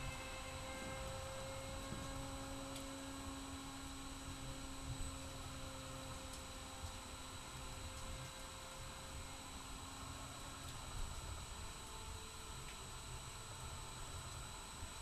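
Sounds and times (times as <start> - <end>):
high whine: 0.0 - 6.5
steady electrical hum: 0.0 - 15.0.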